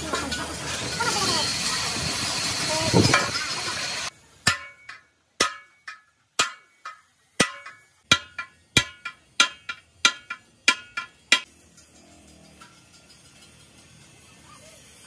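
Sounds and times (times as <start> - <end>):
hammer striking chisel on metal: 4.4 - 11.5.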